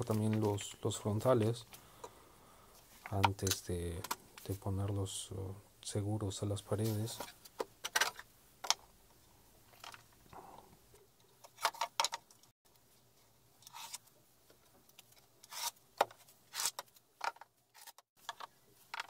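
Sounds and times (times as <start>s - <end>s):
wooden pieces knocking and clattering: 9.7s - 10.1s, 11.4s - 12.5s, 16.0s - 19.0s.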